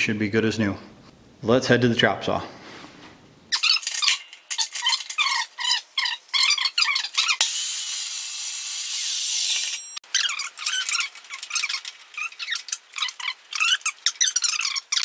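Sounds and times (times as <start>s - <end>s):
squeaky vise clamp screw cranking: 3.5s - 7.4s, 10.1s - 15.0s
saw blade cutting steel tube: 6.9s - 10.0s.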